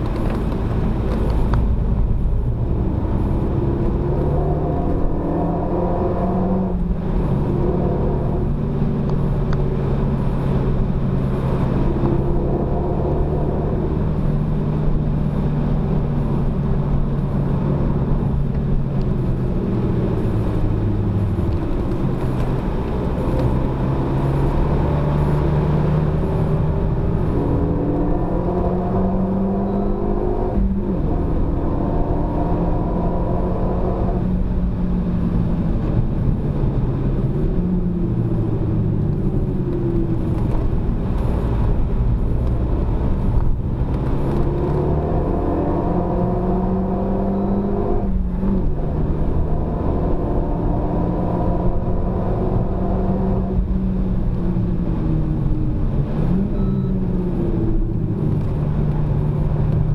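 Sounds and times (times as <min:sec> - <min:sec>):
tyre and road rumble: 0:00.0 - 0:59.9.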